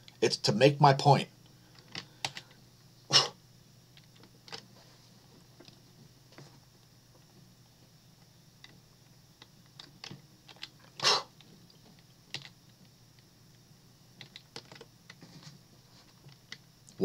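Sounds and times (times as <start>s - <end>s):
computer keyboard and mouse clicks: 9.4s - 10.8s, 12.3s - 12.6s, 14.2s - 15.2s.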